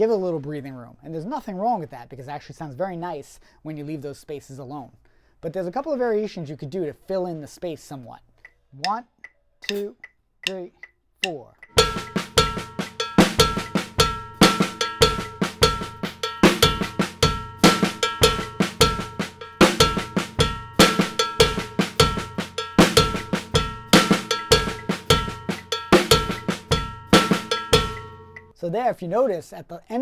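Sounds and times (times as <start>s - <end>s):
snare drum: 11.7s - 28.4s
bass drum: 11.7s - 28.5s
cowbell strokes: 11.7s - 28.5s.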